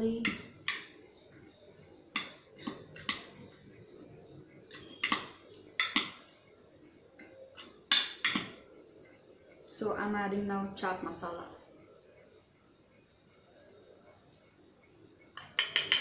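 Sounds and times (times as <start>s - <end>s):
spoon clicking against a bowl: 4.7s - 6.2s, 15.4s - 16.0s.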